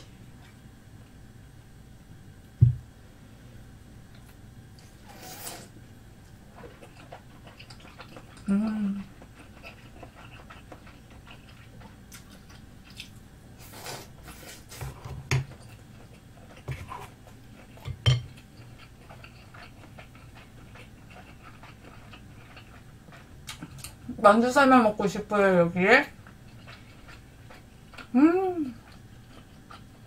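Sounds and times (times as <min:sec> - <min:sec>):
soft chewing: 0:04.0 - 0:24.1, 0:26.0 - 0:30.0.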